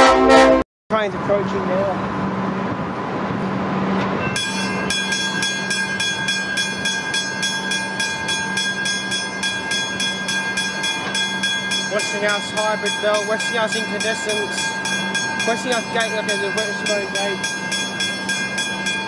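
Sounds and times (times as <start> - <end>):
steady rumble: 0.0 - 19.0
level crossing bell ringing: 4.2 - 19.0.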